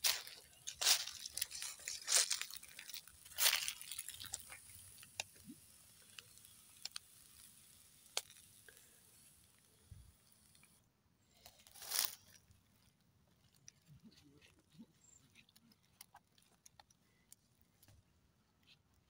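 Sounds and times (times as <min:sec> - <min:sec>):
charcoal fire crackling: 0:00.0 - 0:12.5
soft steady hiss: 0:00.0 - 0:14.0.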